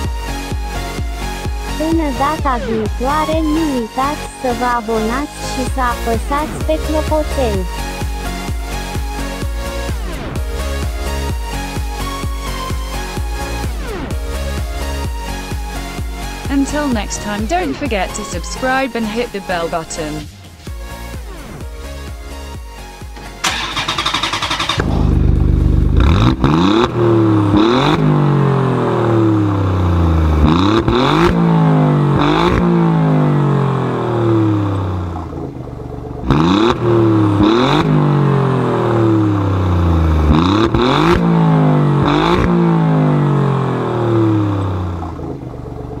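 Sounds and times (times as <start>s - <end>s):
engine revving hard: 1.7s - 12.2s, 23.4s - 35.2s, 36.2s - 45.4s.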